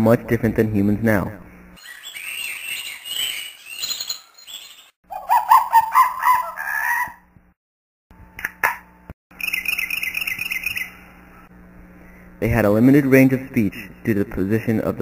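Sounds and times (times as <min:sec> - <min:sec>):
fowl-like squawking calls: 0:05.1 - 0:07.2.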